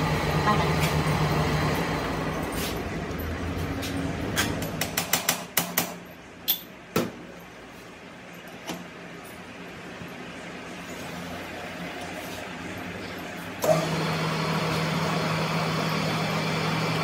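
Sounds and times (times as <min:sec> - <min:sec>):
hammer tapping metal: 0:04.4 - 0:07.1
metal lathe humming: 0:13.2 - 0:17.0.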